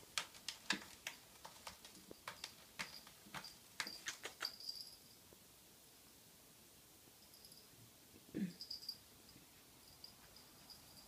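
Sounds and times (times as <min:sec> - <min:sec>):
light irregular clicks and taps: 0:00.0 - 0:04.8.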